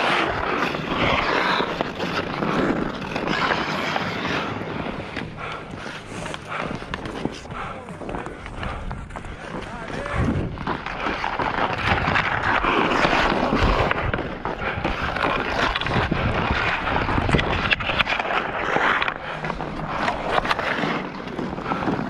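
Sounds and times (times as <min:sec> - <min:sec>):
skates scraping on ice: 0:00.0 - 0:22.0.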